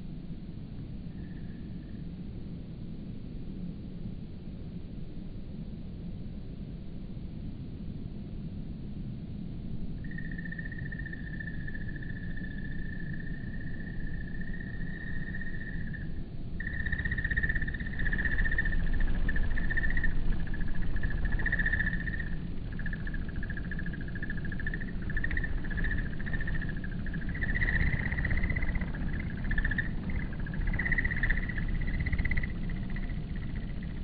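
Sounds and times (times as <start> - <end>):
slowed insect chorus drone: 0.7 - 2.9, 9.7 - 34.0
low rumble: 9.7 - 34.0.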